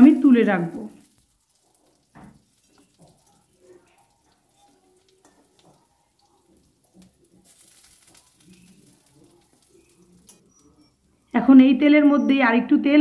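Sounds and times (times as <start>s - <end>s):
oil sizzling: 0.0s - 11.4s
metal spatula clinking and scraping: 1.1s - 10.8s.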